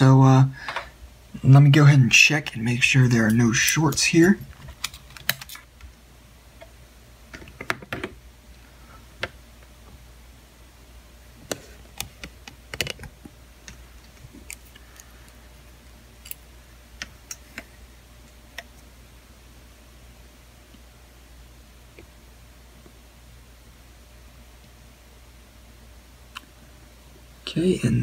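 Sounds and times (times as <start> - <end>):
faint low hum: 0.0 - 28.0
multimeter probes clicking and tapping: 11.5 - 15.1.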